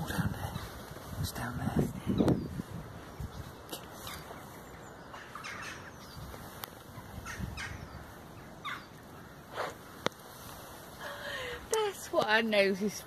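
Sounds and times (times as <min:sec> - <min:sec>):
dog sniffing and snorting: 0:09.5 - 0:09.8.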